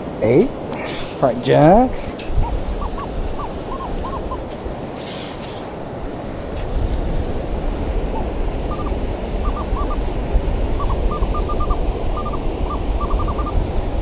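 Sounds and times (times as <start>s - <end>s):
wind: 0.0s - 14.0s
metal detector high beeps: 10.8s - 13.6s.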